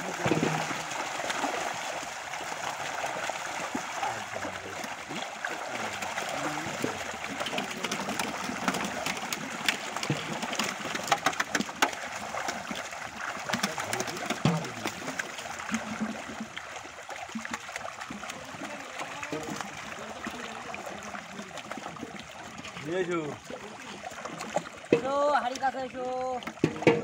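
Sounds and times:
fish splashing in water: 0.0 - 27.0.

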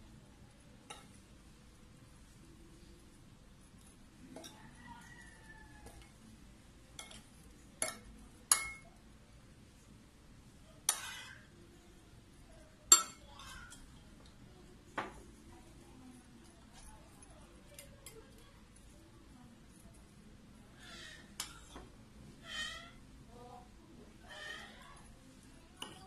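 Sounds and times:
metal spoon clinking on bowl: 7.0 - 9.0, 12.9 - 13.9, 25.8 - 26.0.

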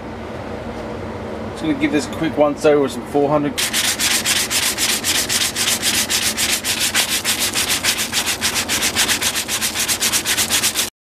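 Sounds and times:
sandpaper rubbing on wood: 3.6 - 10.9.

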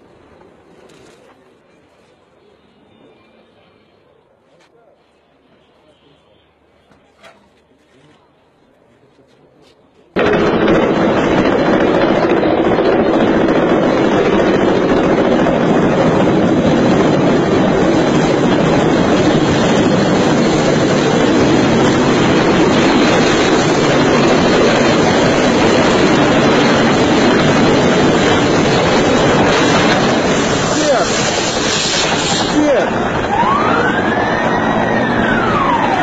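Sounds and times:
helicopter rotors roaring: 10.2 - 36.0
rotor wash buffeting microphone: 10.2 - 36.0.

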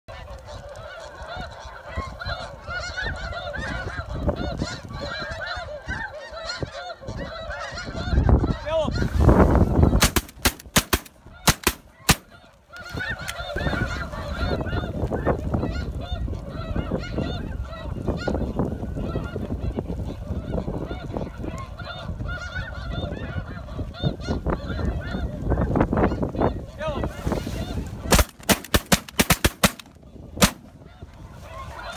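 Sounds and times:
geese honking: 0.1 - 31.9
sharp cracks: 10.0 - 12.4, 28.1 - 30.8.

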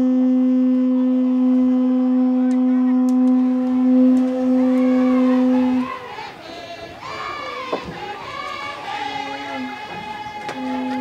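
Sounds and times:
conch shell trumpet blown: 0.0 - 11.0
faint voices calling: 2.4 - 11.0.

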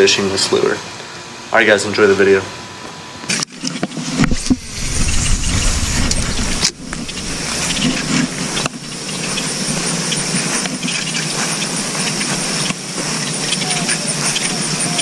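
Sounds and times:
low rumble: 4.3 - 13.5.

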